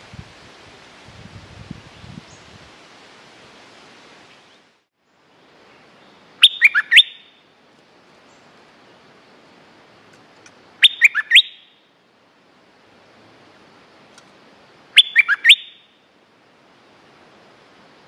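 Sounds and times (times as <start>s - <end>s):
bulbul calling: 6.4s - 7.5s, 10.8s - 11.9s, 14.9s - 16.0s.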